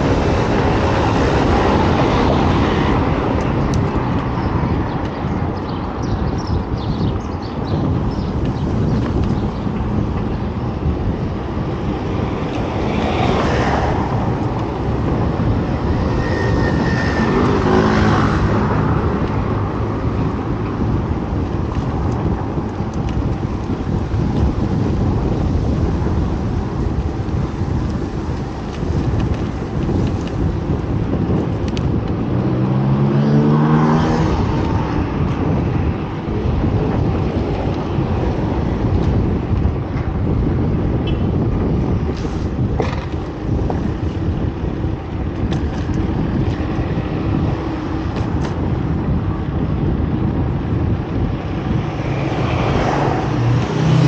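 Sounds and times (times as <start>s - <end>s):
traffic rumble: 0.0s - 54.0s
engine speeding up: 12.7s - 20.4s, 32.3s - 35.9s, 51.4s - 54.0s.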